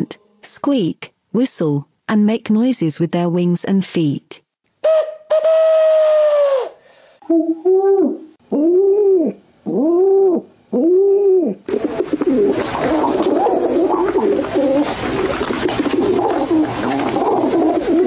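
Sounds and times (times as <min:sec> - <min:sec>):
pigeons cooing: 0:04.8 - 0:18.0
rustle of wings: 0:11.7 - 0:18.0.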